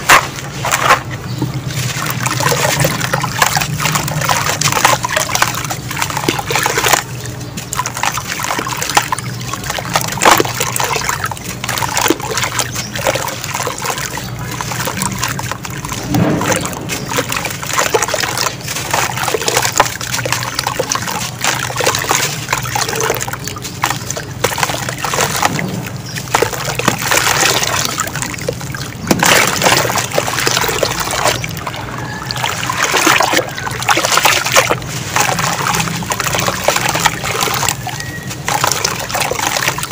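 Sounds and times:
hands squishing wet sand: 0.0s - 39.9s
sand trickling into water: 0.0s - 39.9s
gritty crunching of dry cement: 14.2s - 32.7s.

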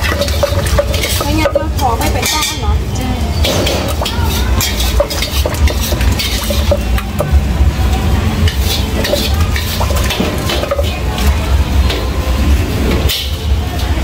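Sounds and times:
metal spoon clinking: 0.0s - 2.6s, 3.4s - 7.3s.

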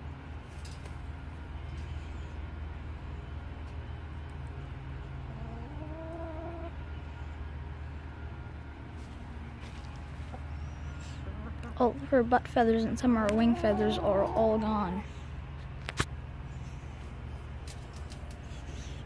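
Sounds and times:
steady low hum: 0.0s - 19.0s
hen calling: 13.2s - 15.3s.

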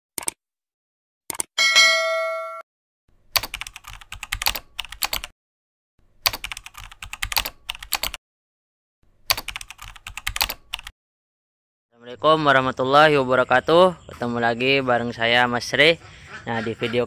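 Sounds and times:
bright bell ding: 1.6s - 2.6s
rapid keyboard typing: 3.4s - 5.3s, 6.2s - 8.2s, 9.3s - 10.9s.

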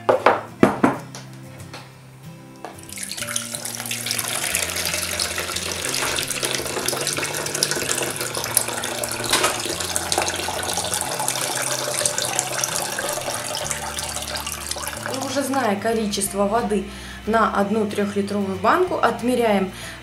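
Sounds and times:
water pouring into plastic bowl: 2.8s - 15.7s.

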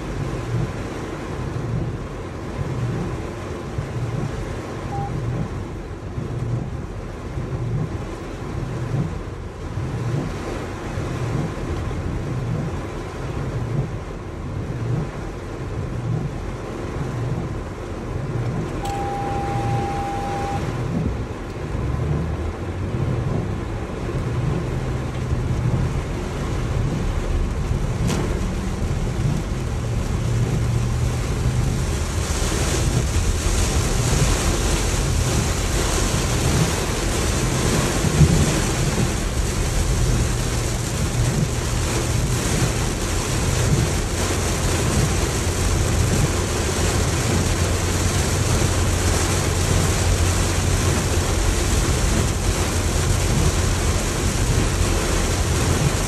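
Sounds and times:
heavy rain on a car: 0.0s - 56.0s
tyres and engine rumble: 0.0s - 56.0s
short steady beep: 4.9s - 5.3s, 18.8s - 20.7s.

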